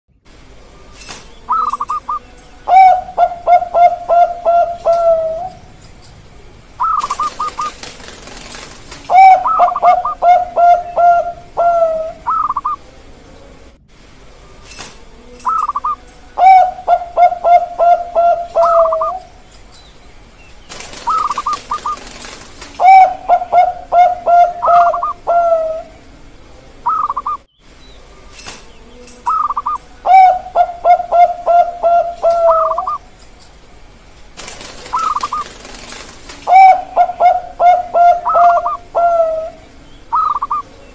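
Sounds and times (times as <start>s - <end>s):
doves cooing: 0.7s - 20.0s, 20.7s - 27.5s, 28.1s - 33.2s, 34.4s - 40.9s.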